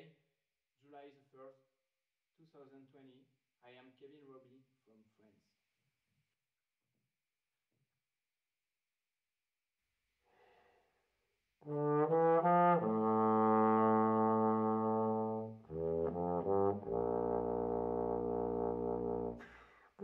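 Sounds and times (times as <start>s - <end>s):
faint breath: 10.2s - 11.2s, 19.4s - 20.0s
bass trombone playing: 11.6s - 19.5s.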